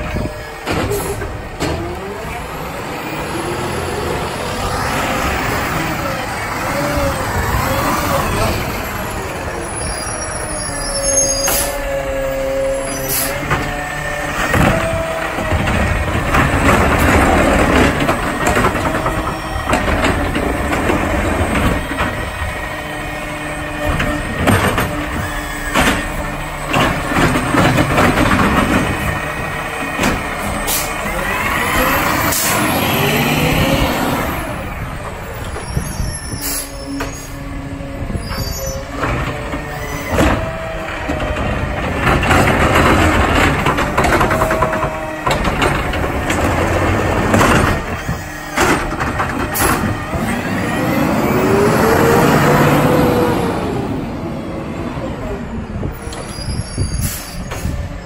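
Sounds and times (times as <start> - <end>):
garbage truck running: 0.0 - 58.0
hydraulic whine: 0.0 - 58.0
air brake hissing: 56.8 - 57.8.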